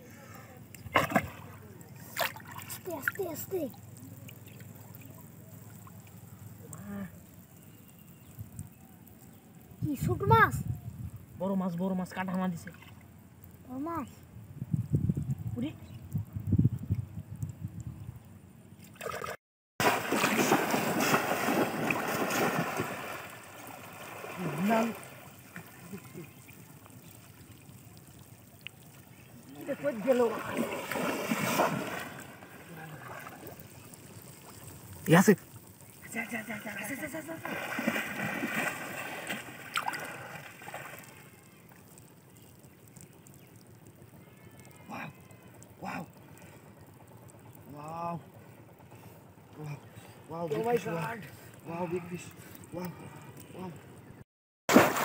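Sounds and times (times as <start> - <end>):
water sloshing: 0.8 - 6.2, 18.8 - 44.0, 54.7 - 55.0
shallow water splashing: 0.8 - 9.2, 18.7 - 49.5, 54.7 - 55.0
fish traps slamming into water: 54.7 - 55.0.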